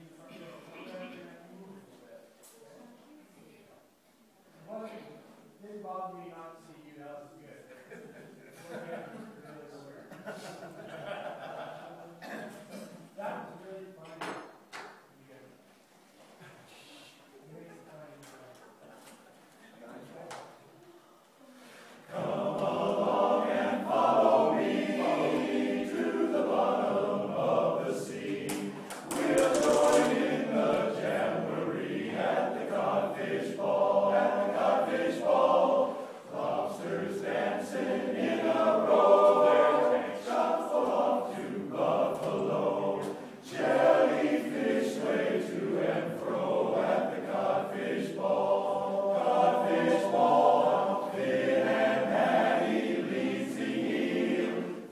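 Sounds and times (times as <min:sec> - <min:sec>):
men's chorus singing a cappella: 0:22.0 - 0:54.9.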